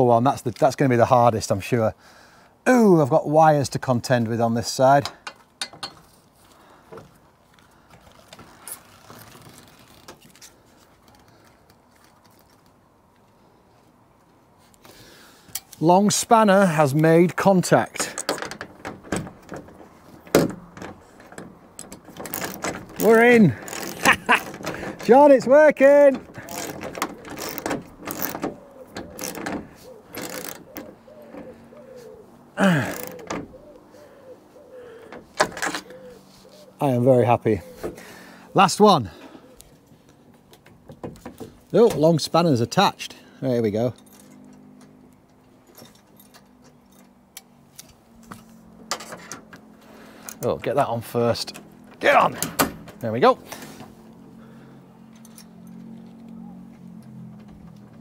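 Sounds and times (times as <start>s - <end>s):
ratchet clicking on metal: 21.8s - 24.8s, 26.4s - 28.4s, 29.1s - 29.5s, 30.1s - 30.8s, 32.7s - 33.2s
socket ratchet clicking: 30.2s - 30.8s.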